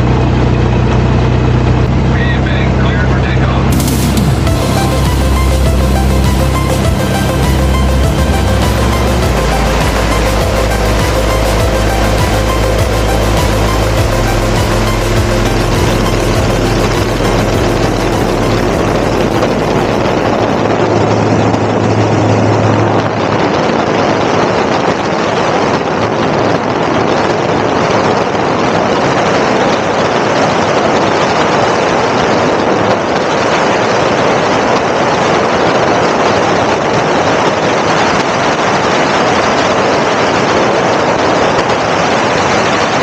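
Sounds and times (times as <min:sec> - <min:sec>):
aircraft engine and propeller drone: 0:00.0 - 0:23.9
low hum: 0:00.0 - 0:24.2
wind rush on microphone: 0:00.0 - 0:43.0.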